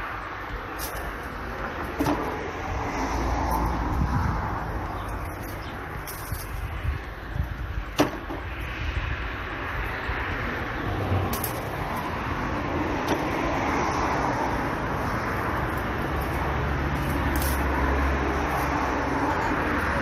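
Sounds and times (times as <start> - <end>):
background traffic noise: 0.0 - 20.0
vehicle engine low hum: 0.0 - 20.0
faint clicks of branches handled: 15.7 - 17.8.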